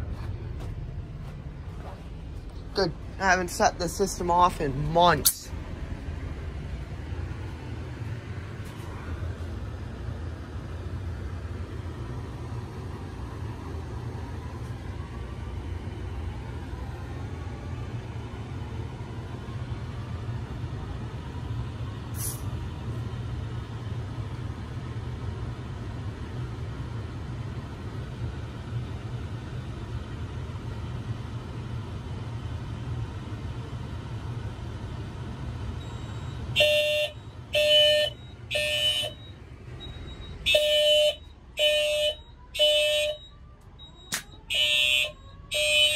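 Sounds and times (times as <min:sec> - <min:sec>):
steady low hum: 0:00.0 - 0:45.9
fire alarm beeps: 0:35.8 - 0:45.9.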